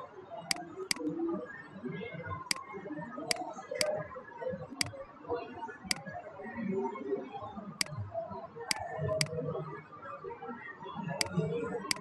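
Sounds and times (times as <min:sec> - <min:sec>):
computer mouse clicking: 0:08.7 - 0:09.3, 0:11.2 - 0:12.0.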